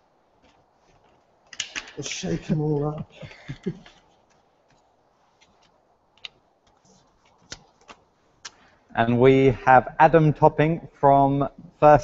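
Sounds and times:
paper ticks and crinkles: 0:03.9 - 0:08.0.

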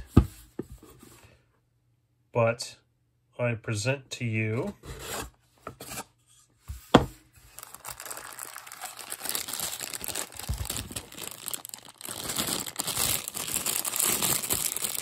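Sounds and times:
plastic bag crinkling: 0:07.5 - 0:15.0.

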